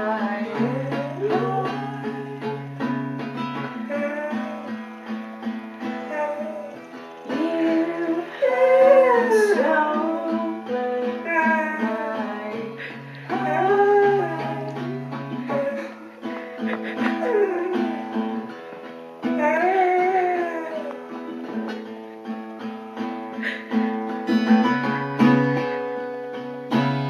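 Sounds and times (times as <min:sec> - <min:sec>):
person singing: 0:00.0 - 0:04.9, 0:05.8 - 0:18.5, 0:19.2 - 0:21.1
strummed acoustic guitar: 0:00.0 - 0:27.0.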